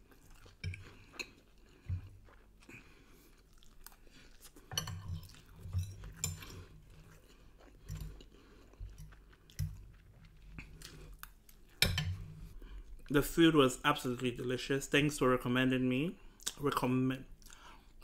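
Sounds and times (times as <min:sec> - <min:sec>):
person chewing food: 0:00.0 - 0:13.2, 0:17.3 - 0:18.0.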